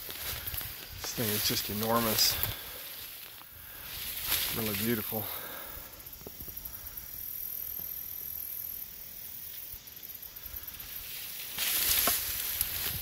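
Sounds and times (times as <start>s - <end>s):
rustling noise: 0.0s - 5.2s, 10.9s - 13.0s
steady high-pitched hiss: 0.0s - 13.0s.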